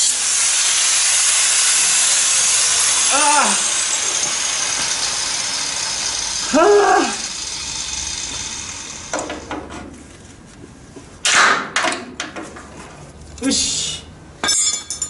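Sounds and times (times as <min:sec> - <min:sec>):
angle grinder winding down: 0:00.0 - 0:09.5.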